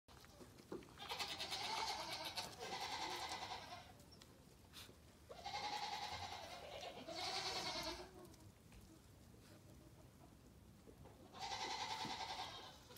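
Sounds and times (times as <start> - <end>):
goat bleating: 0.3 - 4.0, 5.3 - 8.2, 11.2 - 12.9.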